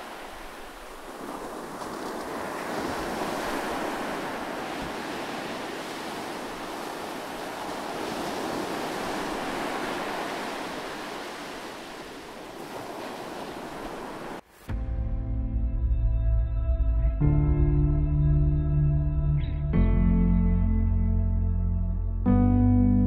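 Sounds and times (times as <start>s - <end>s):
sea waves washing: 0.0s - 14.7s.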